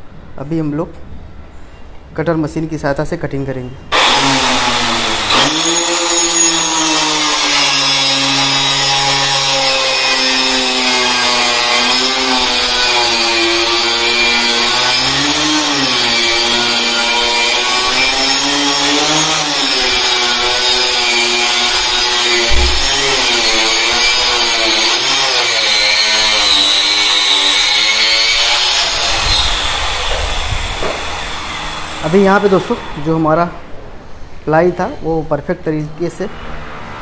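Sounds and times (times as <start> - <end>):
electric saw cutting plywood: 3.9 - 33.2
brief thump: 22.5 - 22.9.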